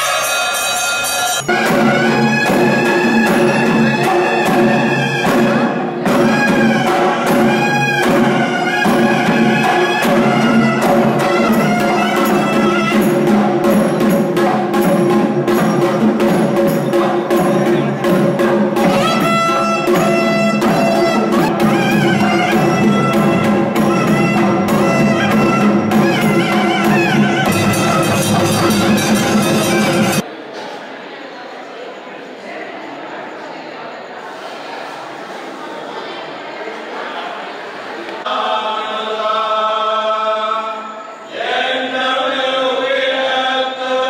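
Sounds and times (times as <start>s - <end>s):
drum strokes: 1.4s - 30.2s
wavering melody: 18.8s - 30.2s.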